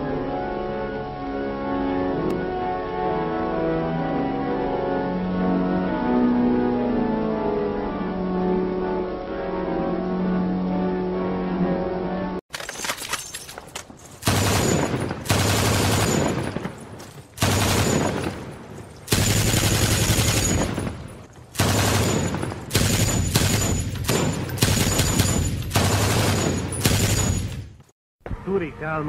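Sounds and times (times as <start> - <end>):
gunfire: 14.2 - 27.8.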